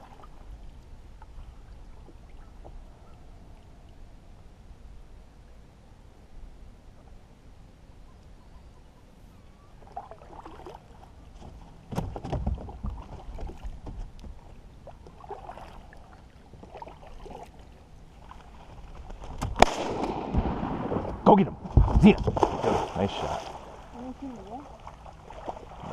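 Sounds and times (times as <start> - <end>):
water splashing around a boat: 0.0 - 4.0, 9.8 - 19.8, 21.7 - 25.9.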